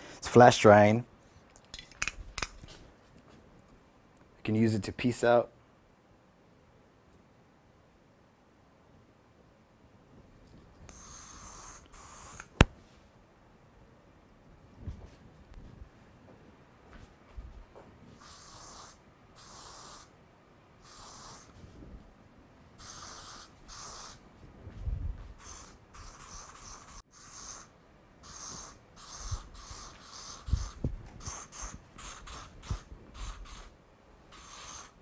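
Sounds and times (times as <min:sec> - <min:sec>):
aerosol can spraying: 0:10.9 - 0:12.7, 0:18.2 - 0:20.1, 0:20.8 - 0:21.6, 0:22.8 - 0:24.2, 0:25.4 - 0:35.0.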